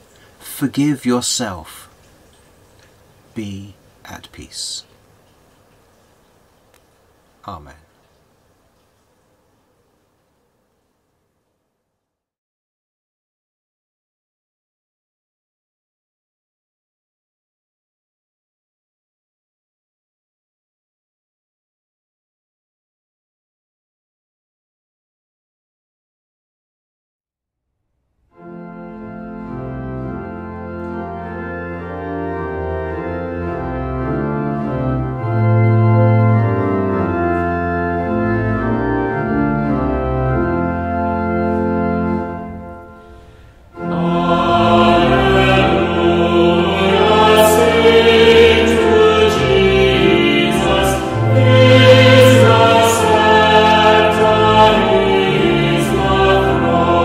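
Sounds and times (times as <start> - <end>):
pipe organ held chords: 28.3 - 57.0
choir singing a hymn: 28.6 - 57.0.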